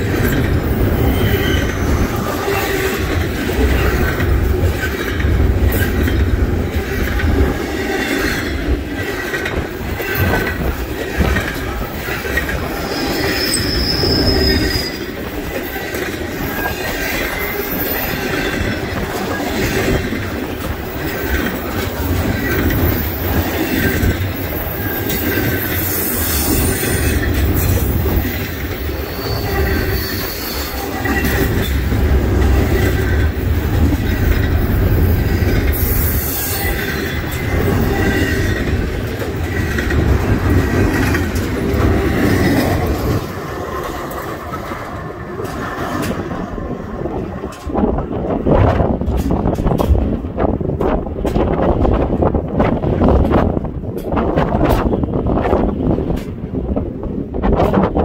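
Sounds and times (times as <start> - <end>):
train wheels rumbling on rail: 0.0 - 58.0
wheel squeal: 0.7 - 3.2, 12.7 - 18.7, 22.4 - 31.8.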